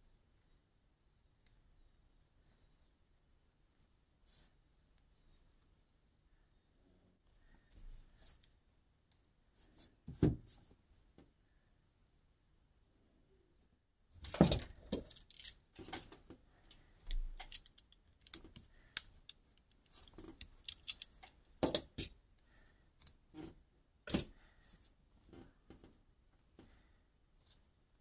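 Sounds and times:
plastic parts clicking and knocking: 14.2 - 22.2.

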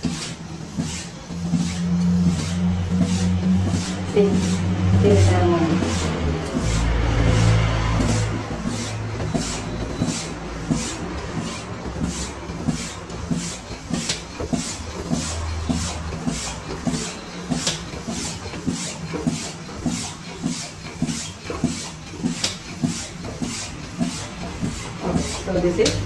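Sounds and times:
pneumatic clicks with air hiss: 19.1 - 24.8.

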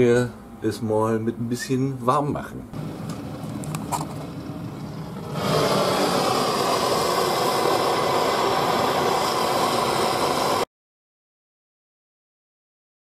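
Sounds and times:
heating tool rushing hiss: 2.8 - 10.7.

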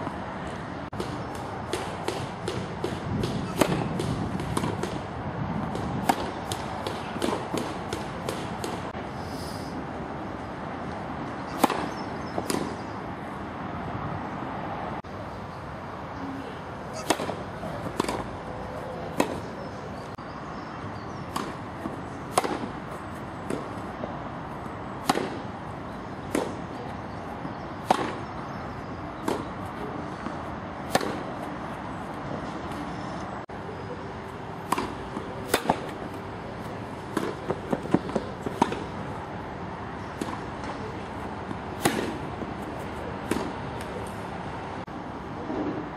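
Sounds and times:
tennis ball struck by rackets: 1.0 - 9.0, 11.5 - 12.9, 17.0 - 18.3, 19.1 - 19.5, 21.2 - 23.9, 25.0 - 28.3, 29.2 - 31.5, 34.6 - 36.2, 37.0 - 39.0, 40.0 - 44.2.

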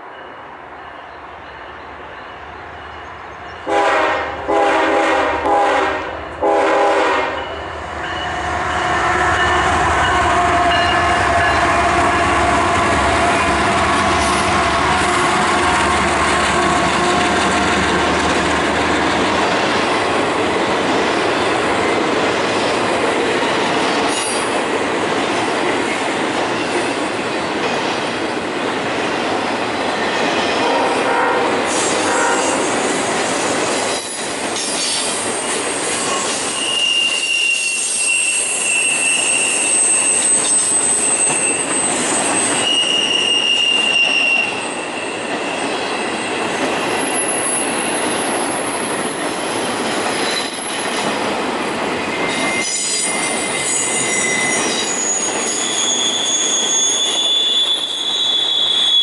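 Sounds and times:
squealing train wheels: 0.0 - 28.4, 29.1 - 59.0
locomotive air horn blasts: 3.7 - 7.5, 30.6 - 32.6
rail clatter: 8.0 - 30.8.

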